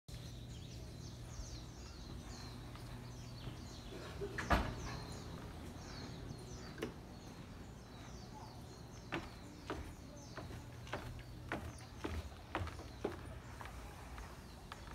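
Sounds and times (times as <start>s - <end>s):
birds chirping: 0.1s - 14.9s
footsteps on wooden stairs: 1.7s - 6.0s, 6.6s - 14.9s
door shutting: 4.2s - 5.2s.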